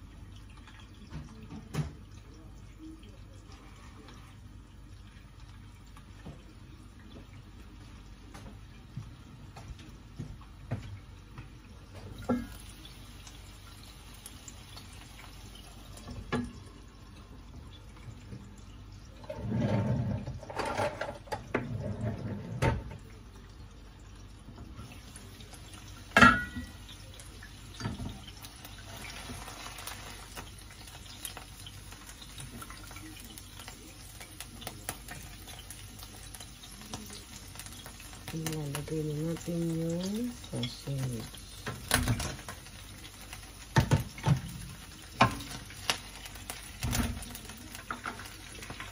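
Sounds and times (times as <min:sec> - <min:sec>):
water running: 0:00.0 - 0:48.9
kitchenware clinking: 0:26.1 - 0:26.8.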